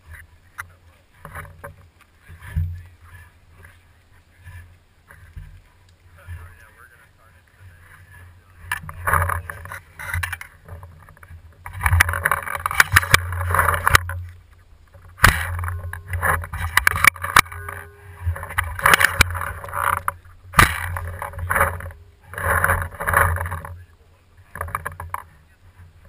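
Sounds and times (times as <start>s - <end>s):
camera handling rubbing noise: 7.9s - 23.8s
sharp knocks: 14.9s - 23.8s.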